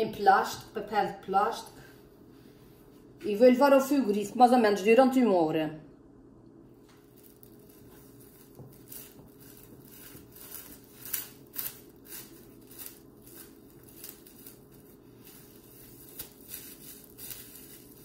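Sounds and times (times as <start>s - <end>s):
cling film crinkling: 6.9s - 18.0s.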